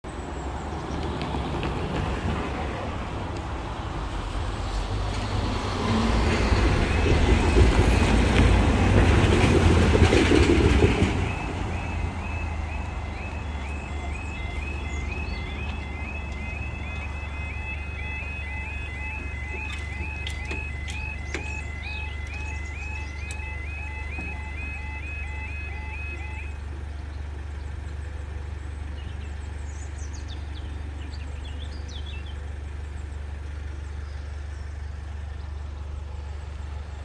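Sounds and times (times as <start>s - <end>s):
road traffic passing: 0.0s - 37.0s
heavy vehicle passing: 0.4s - 27.8s
level crossing alarm warble: 5.7s - 27.0s.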